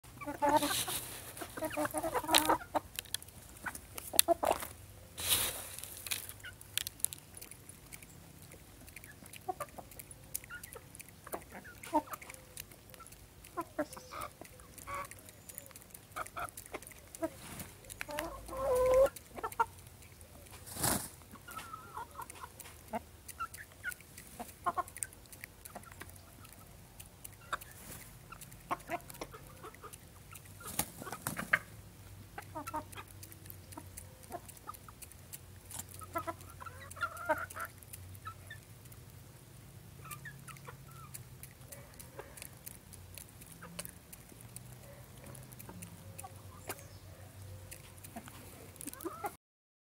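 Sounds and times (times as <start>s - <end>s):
hens clucking: 0.0s - 6.7s, 8.8s - 38.6s, 40.0s - 49.4s
hens pecking on dirt: 0.0s - 49.4s
hen ruffling feathers: 0.3s - 6.6s, 17.2s - 19.1s, 20.5s - 22.8s, 30.6s - 31.7s.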